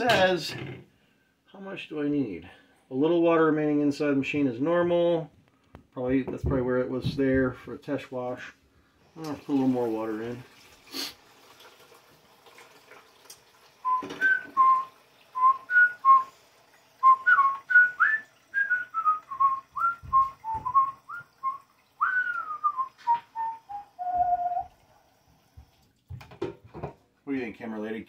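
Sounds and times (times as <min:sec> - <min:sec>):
person whistling a tune: 0:13.8 - 0:16.3, 0:17.0 - 0:24.7.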